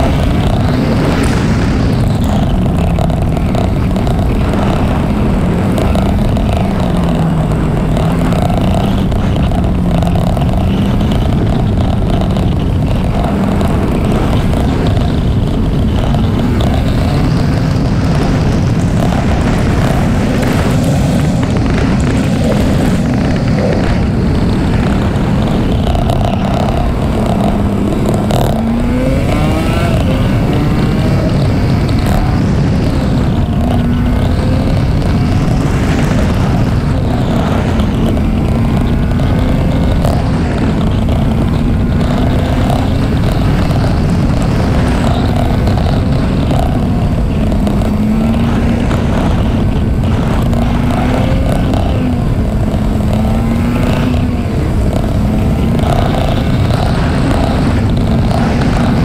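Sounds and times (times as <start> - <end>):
motorcycle engine running: 0.0 - 59.0
wind rush on microphone: 0.0 - 59.0.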